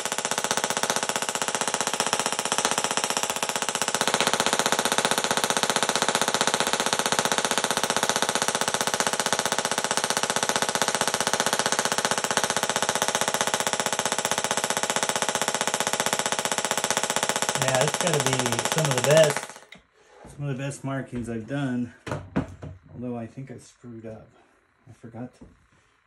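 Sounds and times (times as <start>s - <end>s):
tesla coil buzzing crackle: 0.0s - 19.8s.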